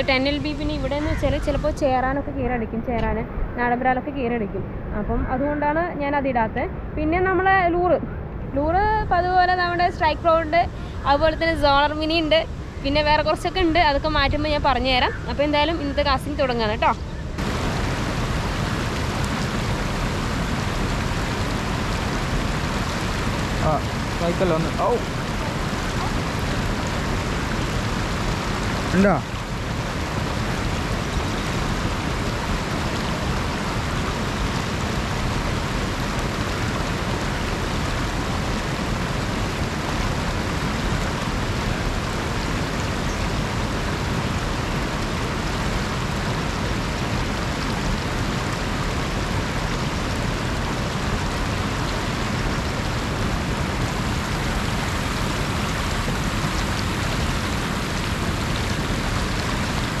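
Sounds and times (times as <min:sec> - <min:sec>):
river rushing over rocks: 0:15.4 - 1:00.0.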